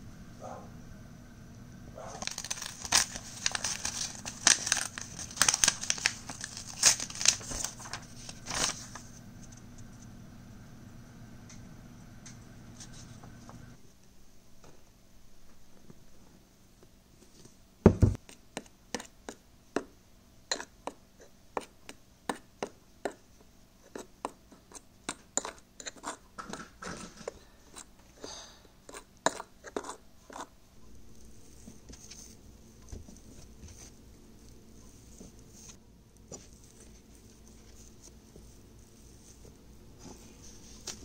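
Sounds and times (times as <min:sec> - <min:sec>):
fork scraping ceramic bowl: 0:20.5 - 0:20.8, 0:23.8 - 0:26.2, 0:28.9 - 0:30.5.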